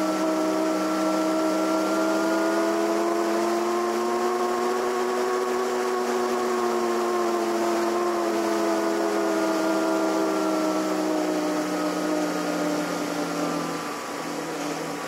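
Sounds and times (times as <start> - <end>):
model plane electric motor whining: 0.0 - 15.0.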